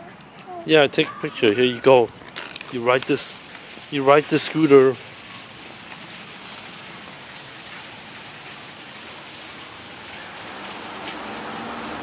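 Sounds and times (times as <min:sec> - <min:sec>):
street traffic hiss: 0:00.0 - 0:12.0
car approaching: 0:09.0 - 0:12.0.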